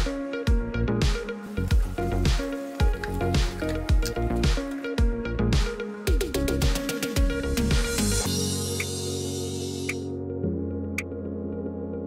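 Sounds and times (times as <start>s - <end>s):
kick drum beat: 0.0s - 7.9s.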